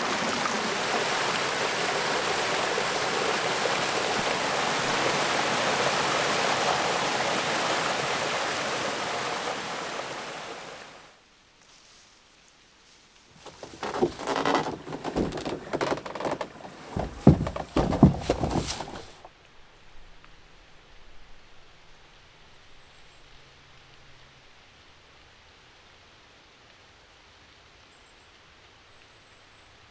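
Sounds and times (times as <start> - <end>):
stream flowing over rocks: 0.0 - 11.2, 13.4 - 19.3
footsteps in leaf litter: 11.6 - 19.3
knocks: 13.4 - 19.2.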